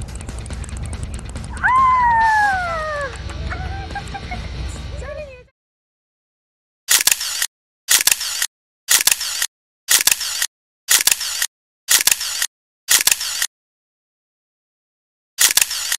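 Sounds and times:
camera shutter clicks: 0:06.9 - 0:13.5, 0:15.4 - 0:15.9.

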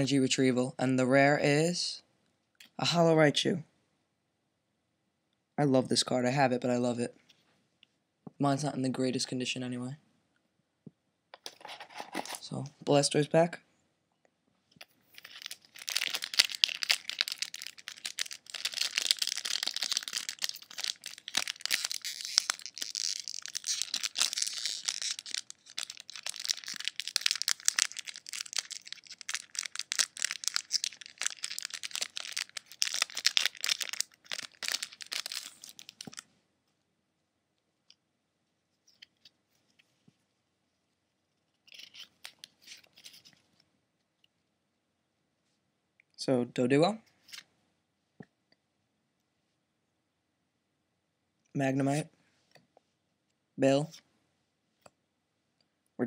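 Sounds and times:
foil wrapper tearing and crinkling: 0:15.1 - 0:36.2.

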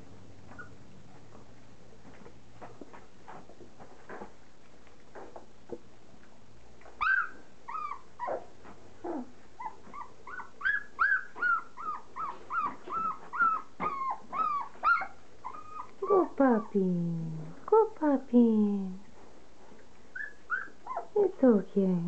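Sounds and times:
puppies lapping at food: 0:00.0 - 0:10.6, 0:19.0 - 0:21.1
puppy whimpering: 0:00.5 - 0:00.8, 0:06.8 - 0:16.8, 0:20.1 - 0:21.2.

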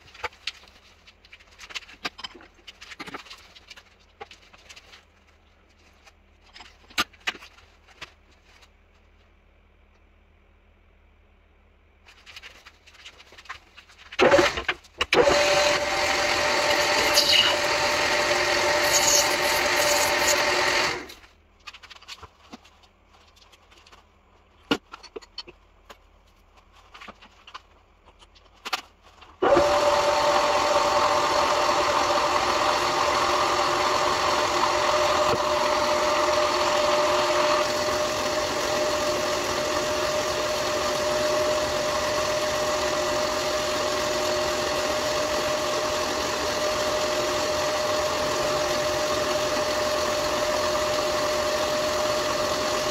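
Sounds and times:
metal lathe running: 0:15.2 - 0:21.1, 0:29.4 - 0:52.9.

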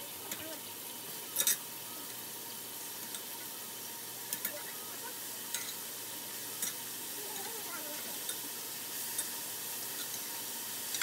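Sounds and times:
beef sizzling in a pot: 0:00.0 - 0:11.0.

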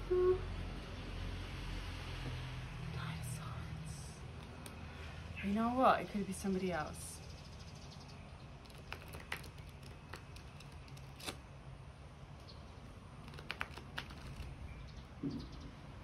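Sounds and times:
cards being shuffled: 0:08.6 - 0:11.4, 0:13.2 - 0:14.6.

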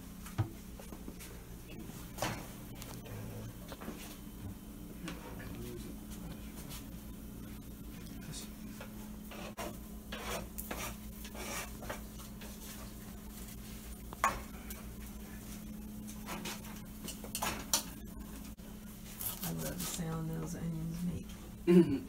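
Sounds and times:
steady low hum: 0:00.0 - 0:22.0
utensils scraping dishes: 0:09.3 - 0:12.0.

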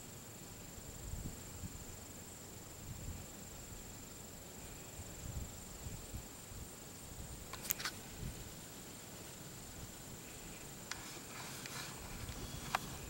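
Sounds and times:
faint high-pitched whine: 0:00.0 - 0:13.0.

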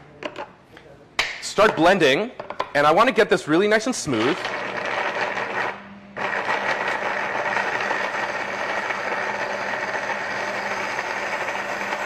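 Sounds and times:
blender running: 0:04.2 - 0:12.0.

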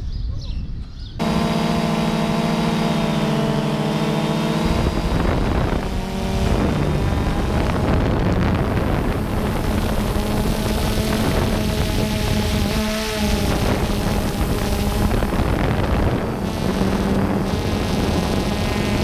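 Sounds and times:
wind on microphone: 0:00.0 - 0:19.0
drone propellers humming: 0:01.2 - 0:19.0.

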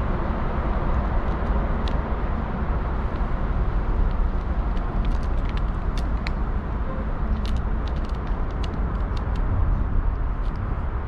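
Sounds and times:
low rumble of city traffic: 0:00.0 - 0:11.0
cat crunching dry kibble: 0:04.0 - 0:06.4, 0:07.4 - 0:09.5.

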